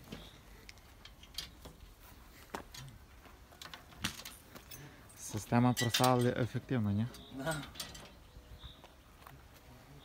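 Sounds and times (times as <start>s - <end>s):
faint metallic chain clinks: 4.1s - 6.4s.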